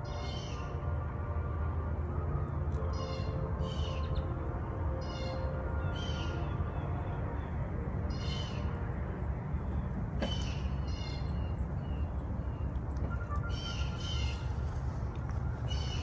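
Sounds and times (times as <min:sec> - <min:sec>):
eagle calling: 0:13.1 - 0:14.7.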